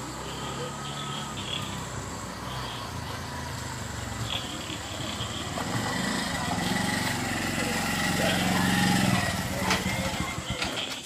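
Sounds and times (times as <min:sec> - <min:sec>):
insects chirring: 0:00.0 - 0:06.7
auto-rickshaw engine running: 0:00.0 - 0:11.0.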